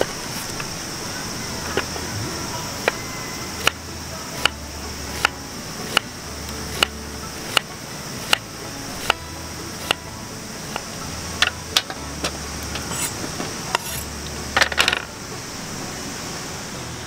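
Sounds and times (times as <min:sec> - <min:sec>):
high insect drone: 0:00.0 - 0:17.0
knife chopping on wooden board: 0:04.4 - 0:06.1, 0:06.7 - 0:09.2, 0:09.8 - 0:10.0
metallic clinks: 0:12.7 - 0:15.2.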